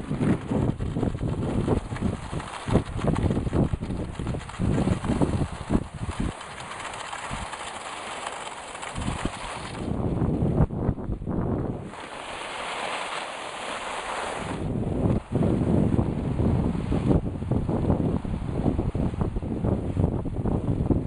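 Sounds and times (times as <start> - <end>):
skis and sled on snow: 0.0 - 10.0, 11.8 - 15.7.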